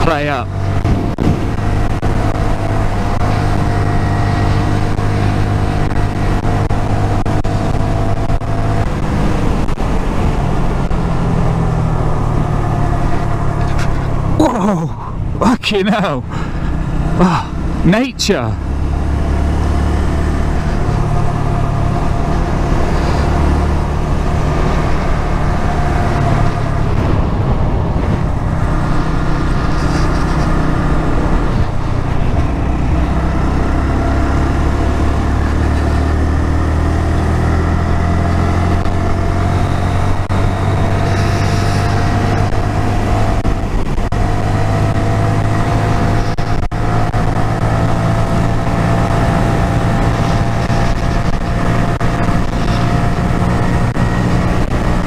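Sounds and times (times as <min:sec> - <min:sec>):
motorcycle engine running: 0:00.0 - 0:55.0
wind rushing: 0:00.6 - 0:14.4, 0:16.2 - 0:35.4.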